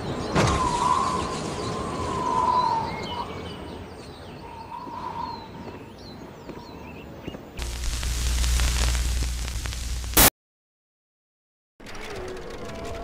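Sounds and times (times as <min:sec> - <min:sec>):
birds chirping: 0:00.0 - 0:09.0.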